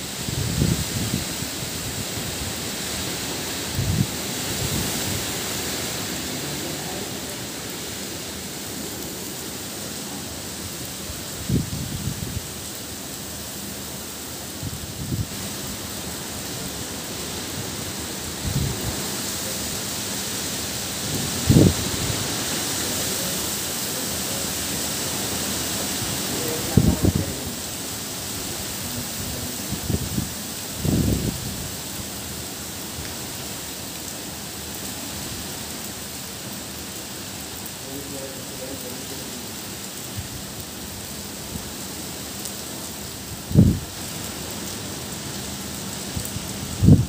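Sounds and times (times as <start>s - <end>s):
strong wind: 0.0s - 12.7s, 14.6s - 32.0s, 43.1s - 44.1s, 46.0s - 47.0s
heavy rain: 0.0s - 47.0s.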